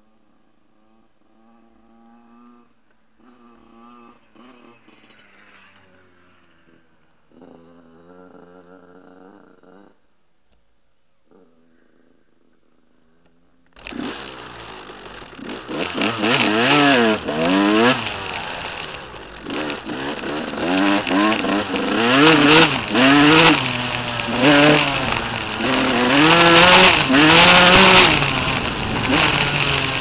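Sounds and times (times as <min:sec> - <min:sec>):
dirt bike engine revving: 0:00.7 - 0:09.9, 0:13.8 - 0:30.0.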